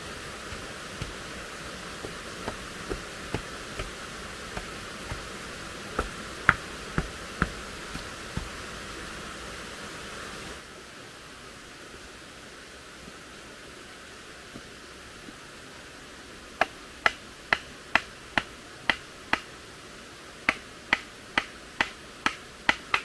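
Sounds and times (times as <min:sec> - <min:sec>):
wooden stick knocking soil and stones: 0:00.0 - 0:09.0
steady background hiss: 0:00.0 - 0:23.0.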